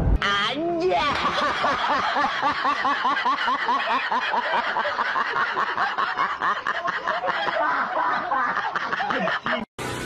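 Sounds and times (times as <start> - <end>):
people laughing: 0.8 - 9.7.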